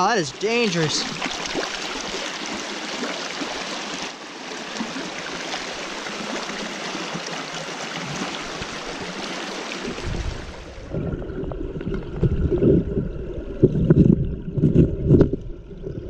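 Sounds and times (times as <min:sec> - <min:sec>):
water rushing over rocks: 0:00.0 - 0:11.1.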